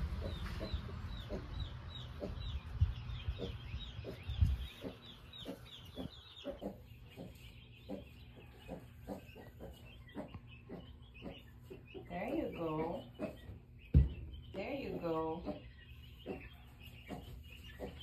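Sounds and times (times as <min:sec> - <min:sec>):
chicks peeping: 0:00.0 - 0:18.0
low rumbling: 0:00.0 - 0:18.0
dull knocks: 0:13.9 - 0:14.3.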